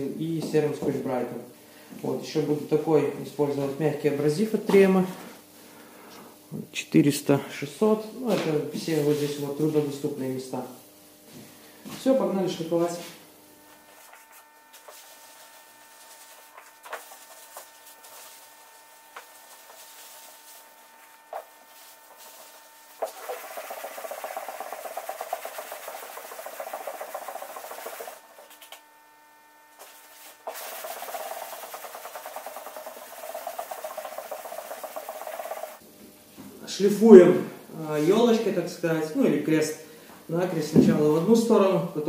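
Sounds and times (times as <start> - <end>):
hand sanding scratchy rasp: 21.4 - 28.2, 30.1 - 35.8
sanding block knocks: 23.0 - 28.2, 30.5 - 35.8.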